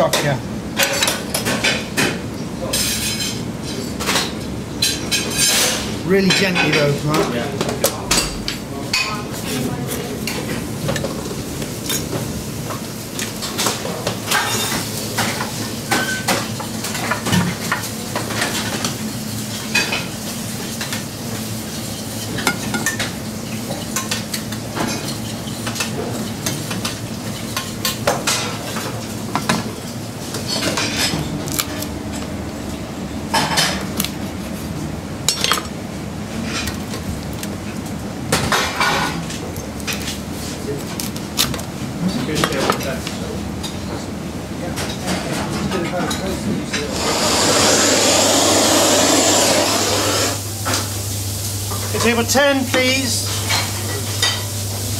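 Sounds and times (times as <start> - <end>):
plates and cutlery clattering: 13.4 - 17.6.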